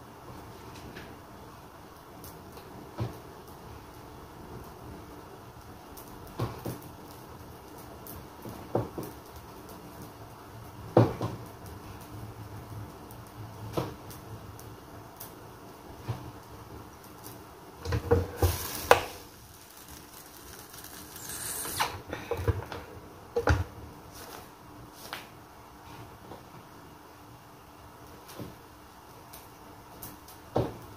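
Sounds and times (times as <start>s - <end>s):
kitchen knocks and clatters: 17.8s - 19.1s
brief scrape: 21.2s - 22.0s.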